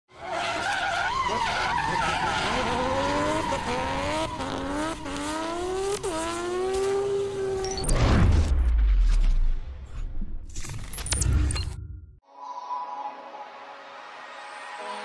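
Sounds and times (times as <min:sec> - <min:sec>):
car engine accelerating through gears: 0:02.2 - 0:07.8.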